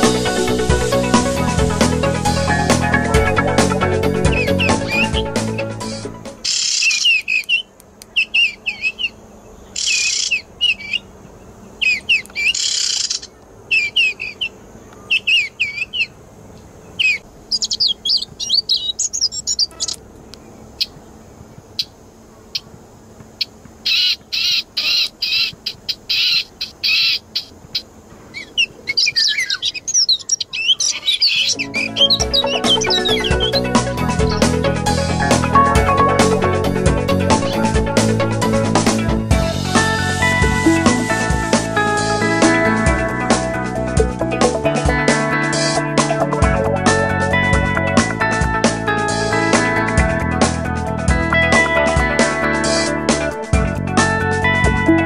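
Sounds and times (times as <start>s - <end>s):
recorded bird chirping: 4.2s - 5.7s, 6.4s - 22.7s, 23.4s - 38.2s.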